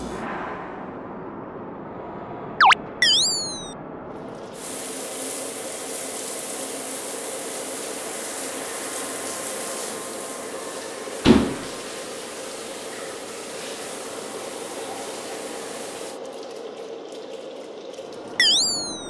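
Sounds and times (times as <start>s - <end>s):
cartoon falling whistle: 2.6s - 3.8s, 18.4s - 19.0s
zigzagging warble: 2.6s - 3.8s, 18.4s - 19.0s.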